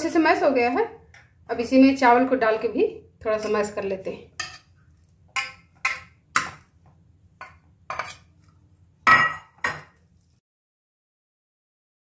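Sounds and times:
steel kitchenware clanking: 4.4s - 6.7s, 7.4s - 8.3s, 9.0s - 10.0s.

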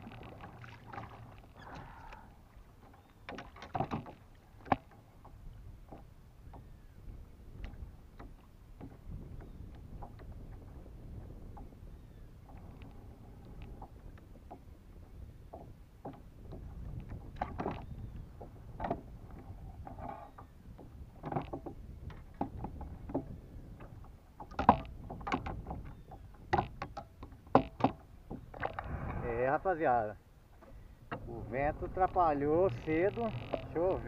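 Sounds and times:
fish knocking on plastic kayak: 26.5s - 28.8s
steady low rumble: 28.7s - 30.3s, 31.0s - 34.0s.

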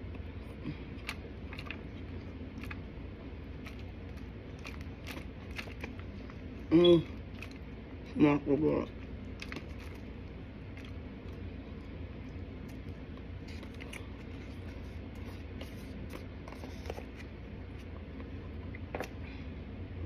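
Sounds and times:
soft chewing: 0.0s - 8.1s, 8.9s - 19.2s
steady low hum: 0.0s - 20.0s
plastic spoon scraping container: 13.4s - 17.3s.

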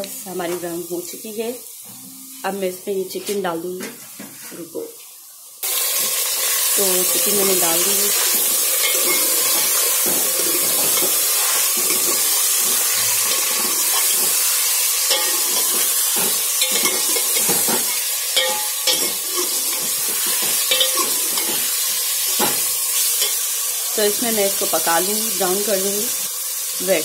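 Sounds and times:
chicken sizzling in hot oil: 4.8s - 27.0s
ladle scraping and clinking pot: 8.1s - 21.8s.

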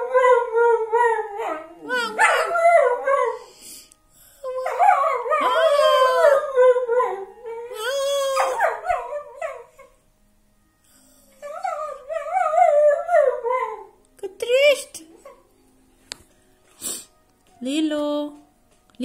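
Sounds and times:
dog howling: 0.0s - 3.5s, 4.4s - 9.9s, 11.4s - 14.0s
person howling: 1.8s - 2.7s, 4.4s - 6.5s.

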